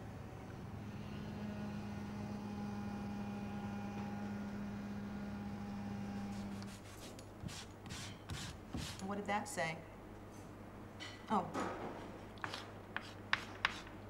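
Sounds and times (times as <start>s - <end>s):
low machine hum: 0.0s - 14.0s.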